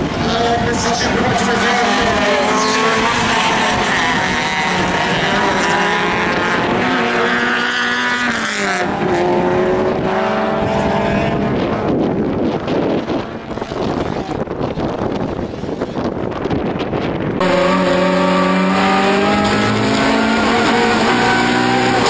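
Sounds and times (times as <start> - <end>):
car engines revving hard: 0.0 - 14.2, 17.4 - 22.0
wind on microphone: 0.0 - 17.4.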